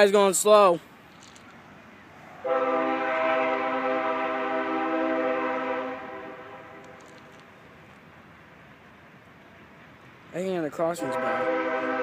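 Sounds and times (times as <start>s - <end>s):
locomotive air horn blast: 2.4s - 7.0s, 11.0s - 12.0s.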